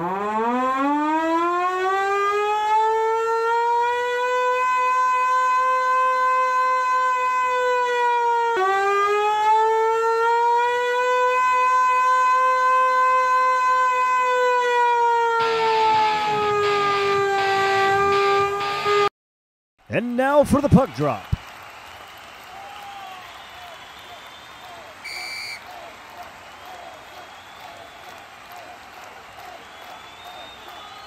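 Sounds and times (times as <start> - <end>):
mechanical siren wailing: 0.0 - 19.1.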